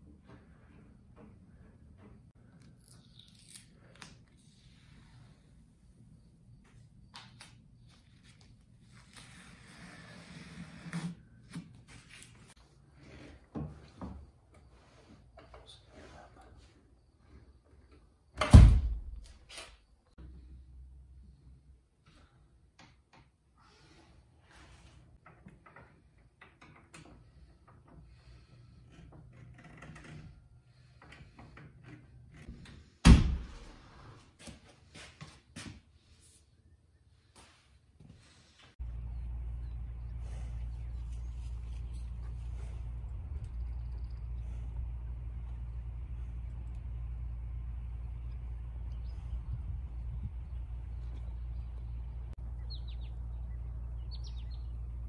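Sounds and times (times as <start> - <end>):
door banging shut: 18.4 - 19.2.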